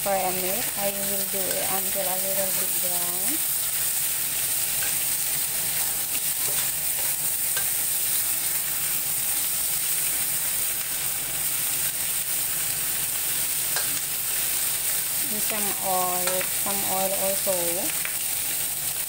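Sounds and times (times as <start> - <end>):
meat sizzling in a wok: 0.0 - 19.0
spatula scraping a wok: 3.5 - 10.0.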